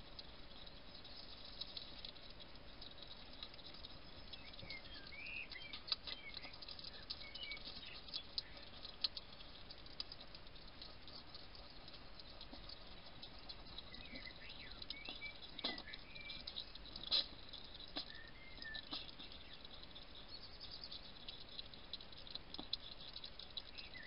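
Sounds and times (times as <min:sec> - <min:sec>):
hedgehog crunching food: 0:00.0 - 0:24.0
faint high chirps: 0:02.7 - 0:09.6, 0:12.8 - 0:21.7, 0:22.6 - 0:24.0.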